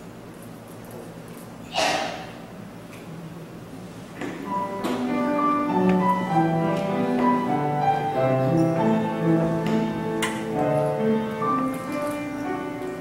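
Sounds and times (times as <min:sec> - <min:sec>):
chamber ensemble playing: 0:04.5 - 0:13.0.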